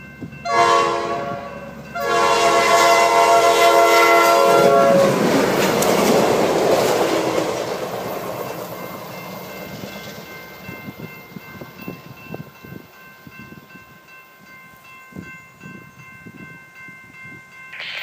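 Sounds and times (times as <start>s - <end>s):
crossing warning bell ringing: 0.0s - 5.1s, 8.5s - 18.0s
train rumble and wheel clatter: 0.0s - 18.0s.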